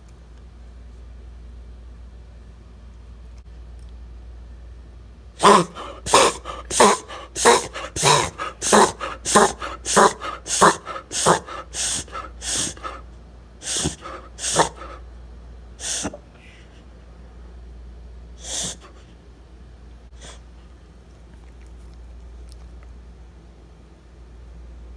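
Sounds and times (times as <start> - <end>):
dog reverse sneezing snorts: 5.4 - 13.0, 13.6 - 15.0, 15.8 - 16.3, 18.4 - 19.0.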